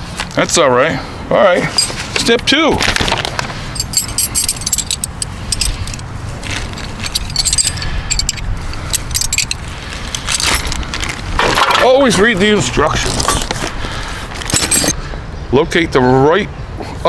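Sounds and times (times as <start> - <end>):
paper rustling and crinkling: 2.8 - 3.6
steady low rumble: 3.4 - 11.4.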